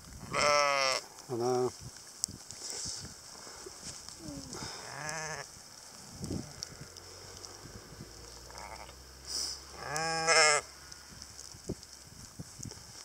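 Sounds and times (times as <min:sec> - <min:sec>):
sheep bleating: 0:00.2 - 0:01.0, 0:04.8 - 0:05.5, 0:08.5 - 0:09.0, 0:09.8 - 0:10.7.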